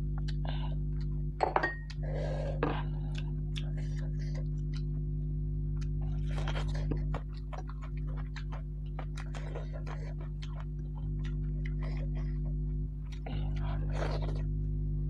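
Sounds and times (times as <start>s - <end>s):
low electrical hum: 0.0s - 15.0s
bowl clinking on table: 1.4s - 1.9s
wet chewing and swallowing: 1.9s - 5.1s, 5.8s - 14.6s.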